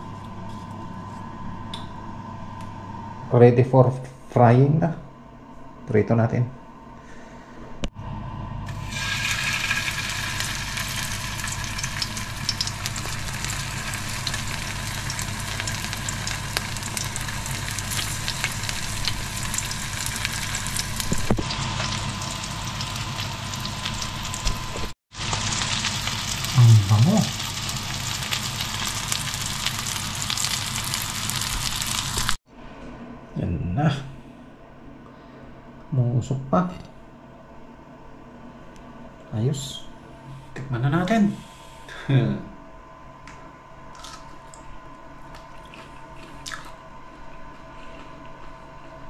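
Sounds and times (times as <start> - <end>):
mushrooms frying in hot oil: 8.7 - 32.4.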